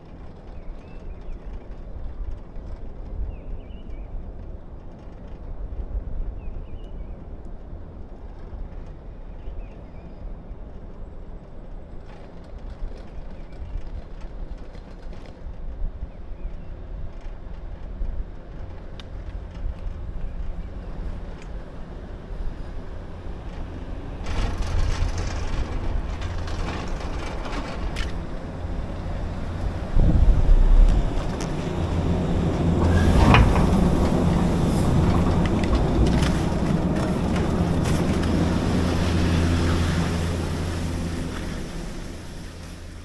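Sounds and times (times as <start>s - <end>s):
chairlift rumble: 17.4s - 43.0s
sharp clatter: 23.5s - 29.2s.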